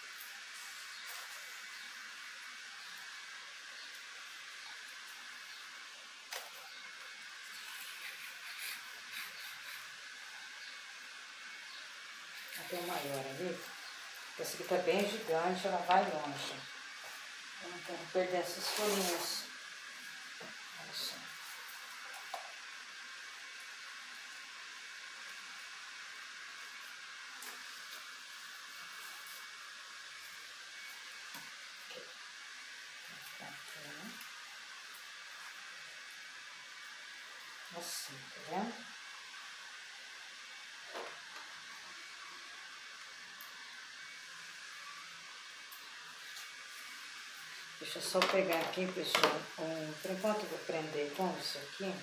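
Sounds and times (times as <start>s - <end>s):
leaves rustling and ticking: 0.0s - 10.4s, 11.6s - 22.6s, 45.6s - 52.0s
steady hiss: 0.0s - 52.0s
plant leaves rustling: 12.3s - 16.6s, 17.6s - 19.5s.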